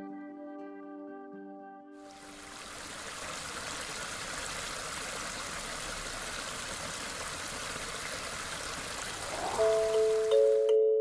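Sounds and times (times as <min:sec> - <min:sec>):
water pouring over rocks: 0:02.1 - 0:10.6.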